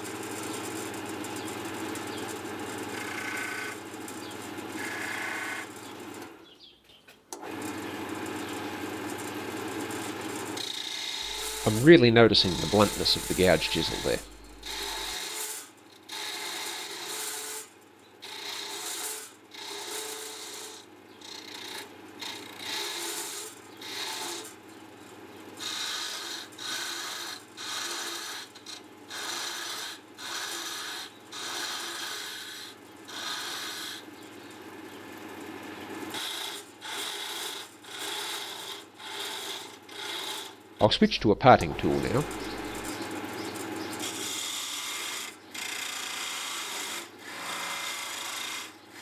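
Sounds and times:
chisel scraping wood on lathe: 0:02.9 - 0:03.8, 0:09.0 - 0:24.6, 0:25.6 - 0:34.1, 0:36.1 - 0:41.0, 0:41.8 - 0:49.0
lathe humming: 0:11.3 - 0:15.1, 0:40.4 - 0:43.6.

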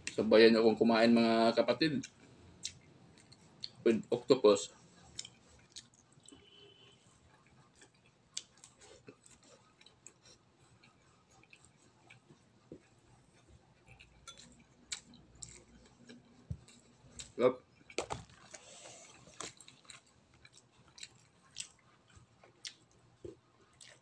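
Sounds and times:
man chewing: 0:02.0 - 0:03.8, 0:04.7 - 0:24.0.

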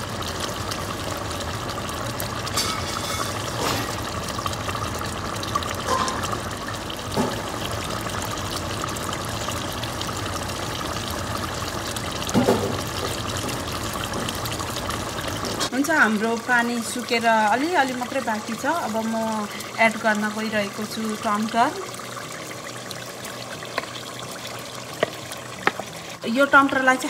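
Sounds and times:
curry bubbling in a pot: 0:00.0 - 0:27.0.

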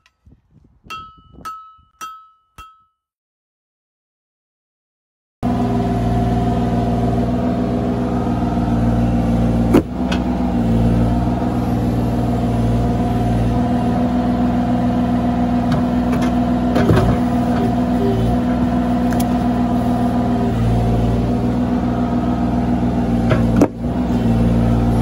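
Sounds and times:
diesel engine running: 0:05.4 - 0:25.0.

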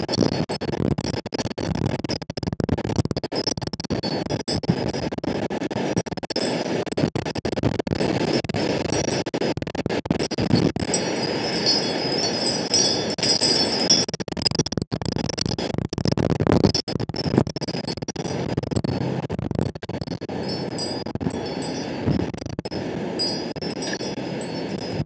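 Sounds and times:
strong wind buffeting microphone: 0:10.4 - 0:14.0, 0:20.3 - 0:25.0
high ringing tones: 0:10.8 - 0:14.1, 0:20.3 - 0:25.0.

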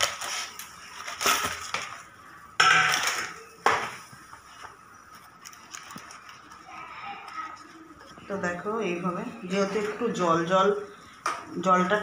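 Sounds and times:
leaves crinkling: 0:00.0 - 0:02.1, 0:04.5 - 0:08.4.

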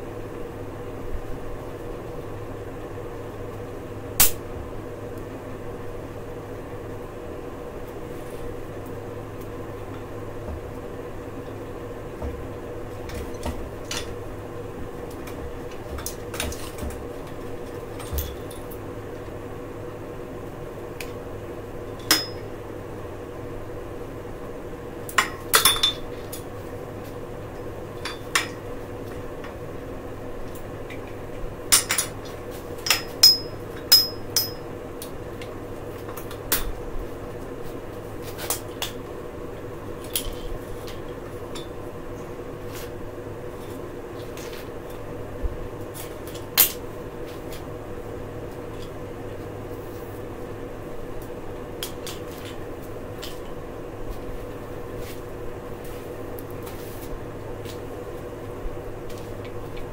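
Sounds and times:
steady hum: 0:00.0 - 0:59.9
metal tools clicking and clanking: 0:32.8 - 0:34.6.

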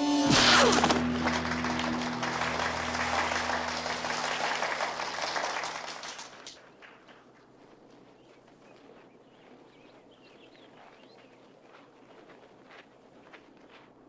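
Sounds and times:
sharp strike: 0:00.0 - 0:06.0
held music note: 0:00.0 - 0:06.2
crowd applauding: 0:00.6 - 0:06.6.

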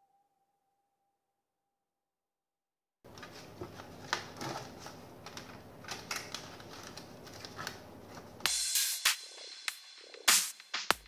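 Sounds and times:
clicks and rustles of handling: 0:03.1 - 0:08.5
room noise: 0:03.1 - 0:11.0.

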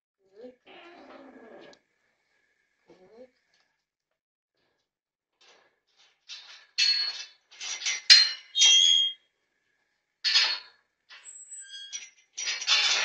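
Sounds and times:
metal gate clanking and rattling: 0:05.4 - 0:09.2, 0:10.2 - 0:13.0.

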